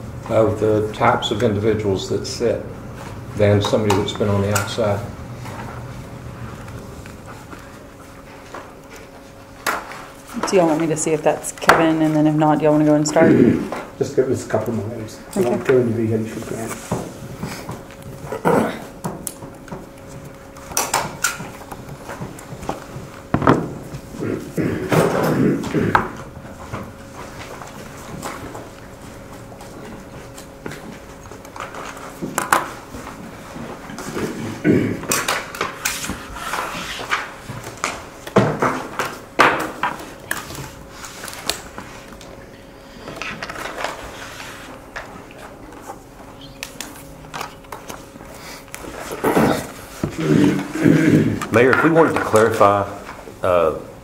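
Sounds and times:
faint steady hum: 0.0 - 54.0
objects knocking and clattering: 20.7 - 26.9
knocks and clicks of objects handled: 30.4 - 32.8.

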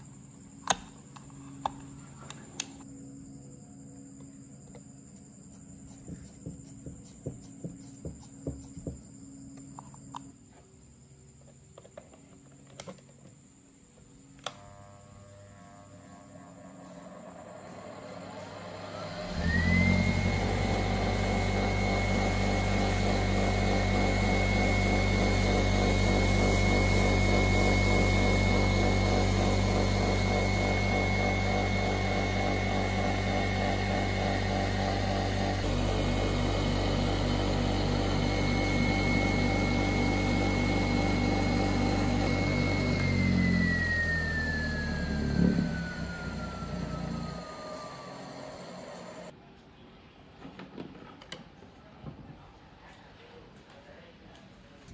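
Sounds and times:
electric blower motor whining: 14.4 - 49.3.

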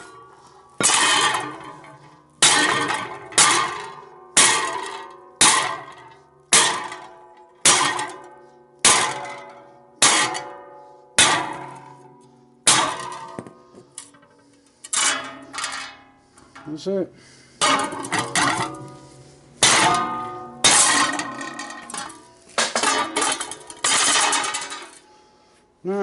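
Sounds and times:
sledgehammer striking steel pipe: 0.0 - 16.2, 17.6 - 25.0.

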